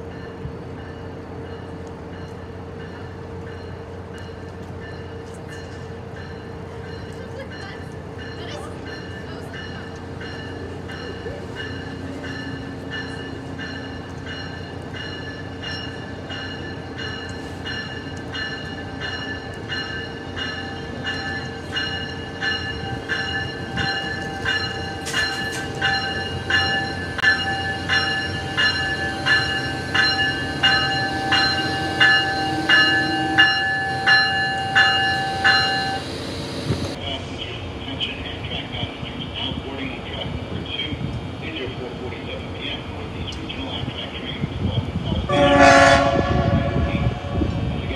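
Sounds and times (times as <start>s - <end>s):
locomotive bell ringing: 0.0s - 37.0s
steady high tone: 8.9s - 37.0s.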